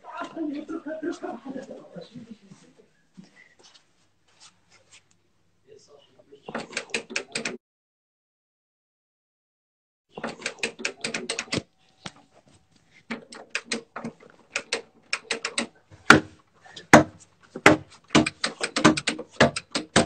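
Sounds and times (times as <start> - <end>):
heavy blows on a door: 16.0 - 20.0
knocking on a door: 16.9 - 20.0.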